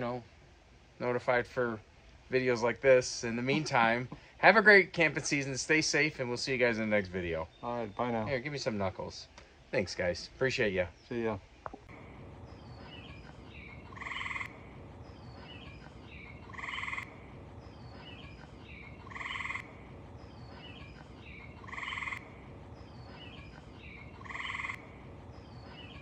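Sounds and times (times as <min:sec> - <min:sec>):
steady hiss: 0:00.0 - 0:26.0
faint chirps: 0:10.5 - 0:26.0
buzzy croaking call: 0:11.9 - 0:26.0.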